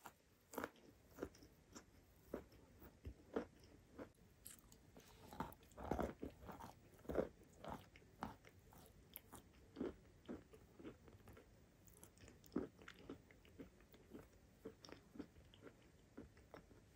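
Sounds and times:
chewing crunches: 0.0s - 16.9s.

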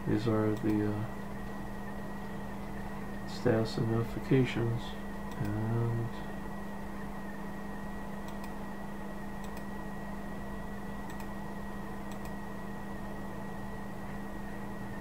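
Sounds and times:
electrical hum: 0.0s - 15.0s
computer mouse clicks: 0.5s - 0.8s, 5.3s - 5.6s, 8.2s - 8.6s, 9.4s - 9.7s, 11.0s - 11.4s, 12.1s - 12.4s.

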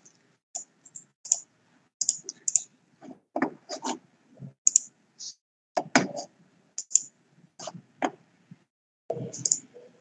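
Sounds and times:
mouse and keyboard clicking: 0.6s - 2.7s, 4.7s - 4.9s, 6.8s - 7.1s, 9.3s - 9.7s.

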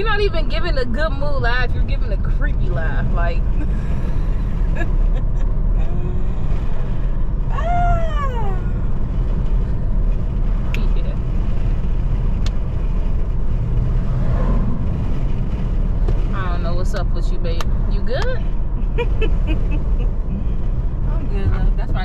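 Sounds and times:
car road rumble: 0.0s - 22.0s
person vocalizing: 5.8s - 6.4s.

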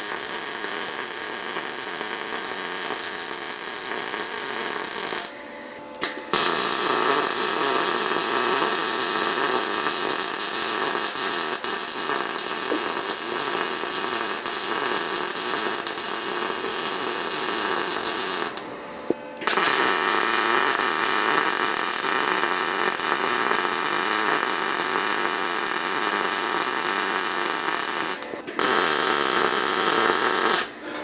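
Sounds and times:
welding arc crackling: 0.0s - 5.3s, 6.0s - 18.7s, 19.4s - 30.8s.

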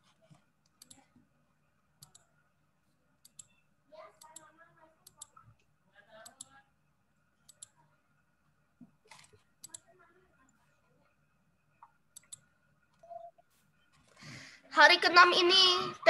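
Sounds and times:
computer mouse clicking: 0.6s - 1.1s, 2.0s - 2.3s, 3.2s - 3.6s, 4.2s - 6.5s, 7.5s - 7.8s, 9.1s - 9.9s, 11.8s - 13.0s.

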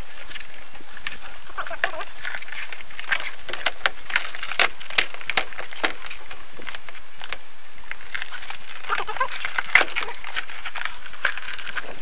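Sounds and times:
latex peeling off bark: 0.0s - 12.0s.

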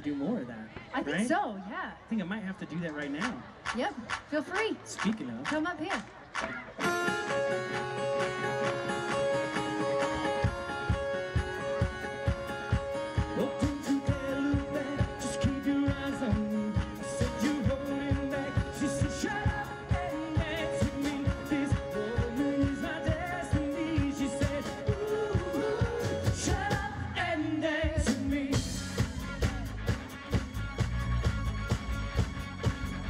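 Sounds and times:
keyboard: 0.0s - 33.0s
guitars: 6.3s - 27.3s, 27.9s - 33.0s
steady drumbeat: 9.1s - 27.0s, 27.8s - 33.0s
person singing: 13.1s - 29.5s.

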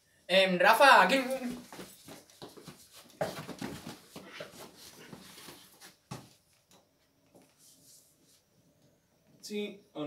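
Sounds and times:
clothes and bedding rustling: 1.1s - 6.5s.

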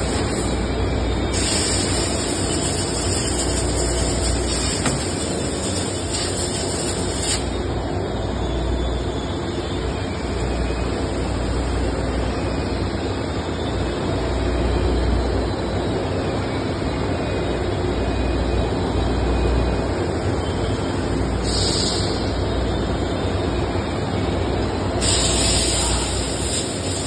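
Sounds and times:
high hiss: 1.2s - 7.5s, 21.4s - 22.4s, 25.0s - 27.0s.

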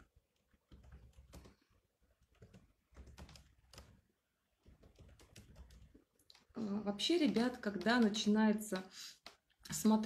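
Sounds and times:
keyboard typing taps: 0.5s - 1.6s, 2.2s - 4.0s, 4.6s - 6.5s, 7.2s - 9.4s.

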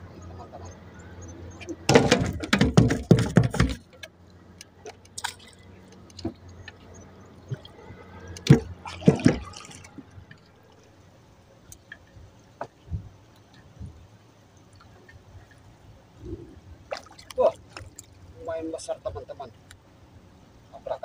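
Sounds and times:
knocks and thumps on boat: 1.6s - 4.1s, 8.4s - 10.1s
water splashing and dripping: 1.8s - 11.0s, 14.5s - 15.8s, 16.8s - 18.6s.

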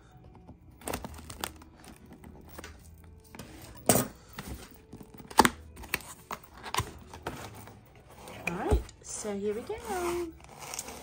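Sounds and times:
scissors cutting cardboard: 9.8s - 11.0s.

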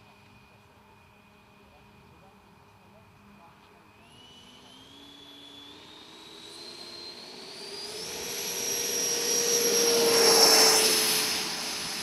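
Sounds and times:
model jet engine whine: 0.0s - 12.0s.

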